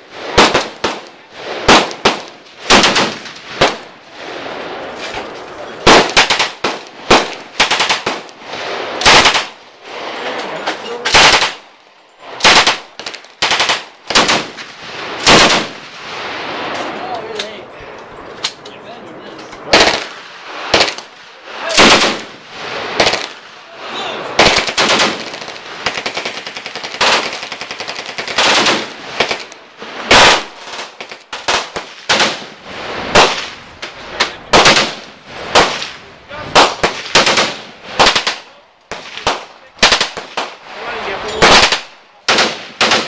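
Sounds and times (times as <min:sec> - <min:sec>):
rifle firing bursts: 0:00.3 - 0:03.9, 0:05.8 - 0:08.3, 0:08.9 - 0:09.6, 0:11.1 - 0:11.7, 0:12.4 - 0:15.9, 0:19.7 - 0:21.2, 0:21.8 - 0:23.4, 0:24.4 - 0:32.5, 0:33.1 - 0:33.5, 0:34.5 - 0:35.8, 0:36.6 - 0:40.6, 0:41.4 - 0:43.0.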